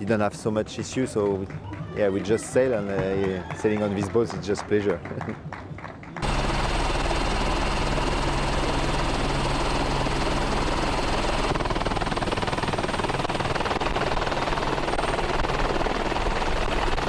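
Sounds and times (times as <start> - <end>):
helicopter drone: 6.2 - 17.0.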